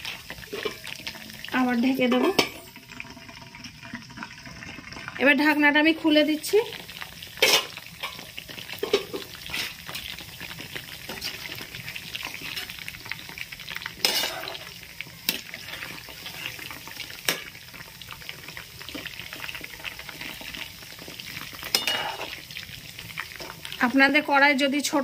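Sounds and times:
chicken deep-frying in oil: 0.0 - 25.0.

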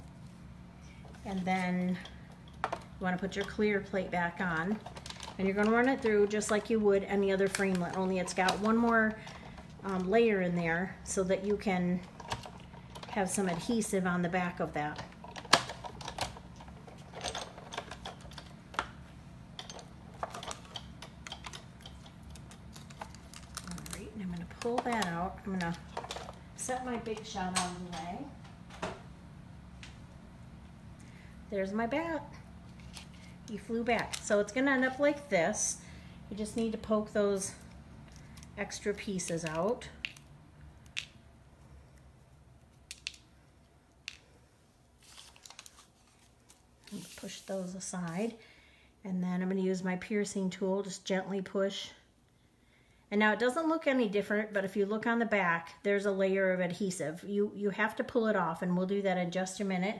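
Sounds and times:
low steady hum: 0.0 - 59.9
paper rustling: 45.0 - 48.3.

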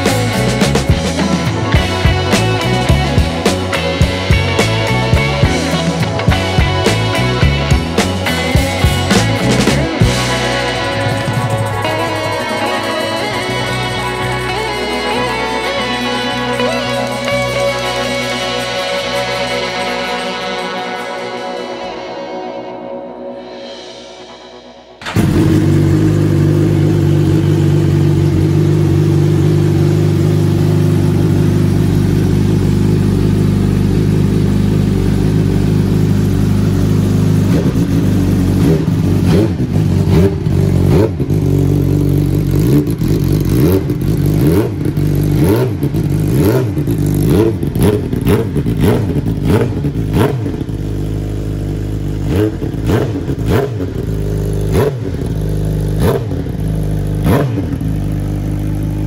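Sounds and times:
motorcycle engine revving: 0.0 - 22.7, 24.6 - 59.0
exhaust cracks: 25.0 - 59.0.

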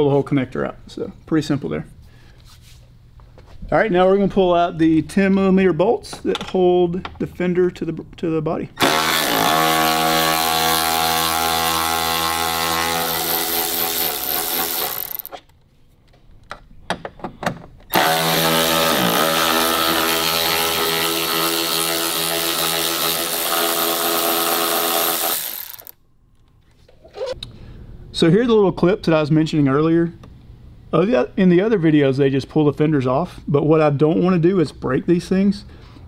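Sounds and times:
cordless power driver spinning: 8.8 - 15.4, 17.9 - 26.0.

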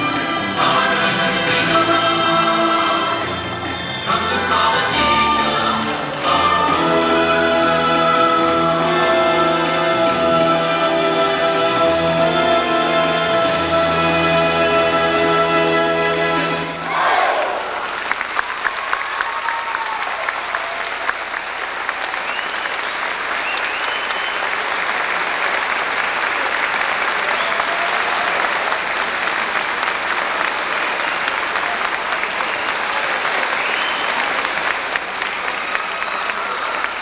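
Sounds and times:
audience applauding: 16.8 - 37.0
high whoops: 18.7 - 21.2, 27.3 - 28.5.

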